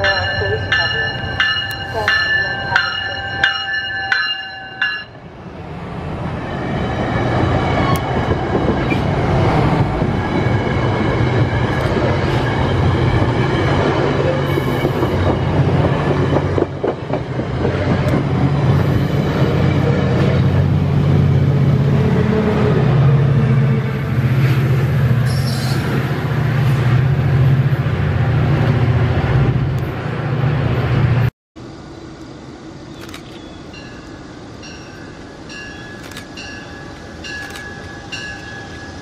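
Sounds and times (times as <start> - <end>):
bell ringing: 0.0 - 5.2
diesel locomotive engine hum: 0.0 - 39.0
train wheels clattering on rails: 11.6 - 20.4.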